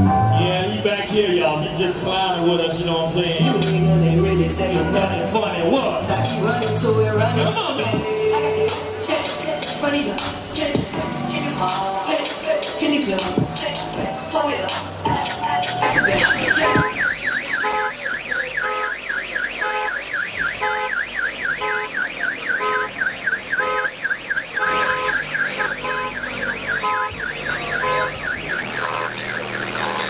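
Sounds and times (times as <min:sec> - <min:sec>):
electronic siren warbling: 0:15.4 - 0:30.0.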